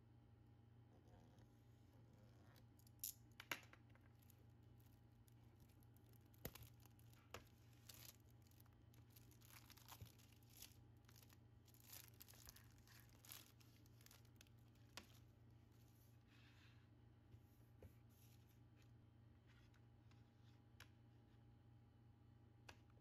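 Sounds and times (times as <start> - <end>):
plastic wrap crinkling: 4.0 - 15.2.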